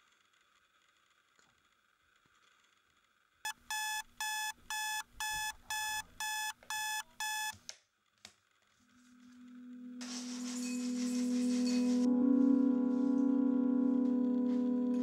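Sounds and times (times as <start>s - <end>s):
alarm clock beeping: 3.5s - 7.5s.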